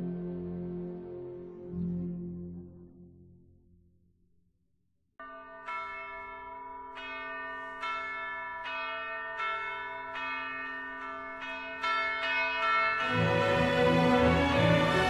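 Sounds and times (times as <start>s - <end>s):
church bells ringing: 5.2s - 15.0s.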